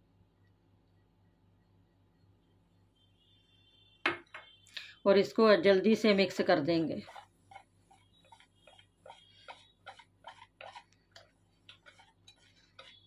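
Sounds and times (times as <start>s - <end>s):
whisk tapping a bowl: 7.0s - 13.0s.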